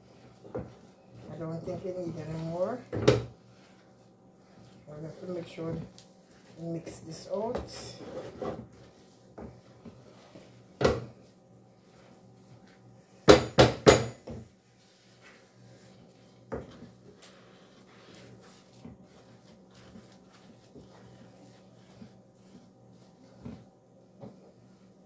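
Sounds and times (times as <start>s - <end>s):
low steady hum: 0.0s - 13.4s, 14.0s - 25.0s
wooden spoon knocking on a pot: 13.3s - 14.5s.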